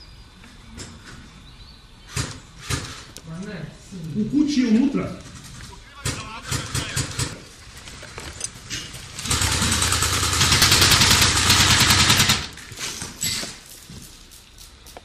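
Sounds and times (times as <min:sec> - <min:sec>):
airsoft gun firing full auto: 0:09.2 - 0:12.6.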